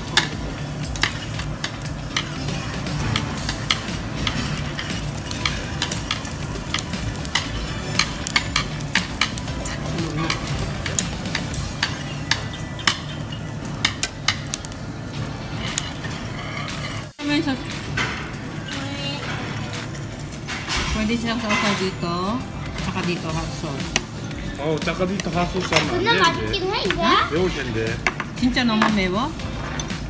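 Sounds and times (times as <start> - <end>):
tongs clicking and scraping: 0.0 - 17.1, 23.8 - 27.0
pork skin sizzling on grill: 0.0 - 30.0.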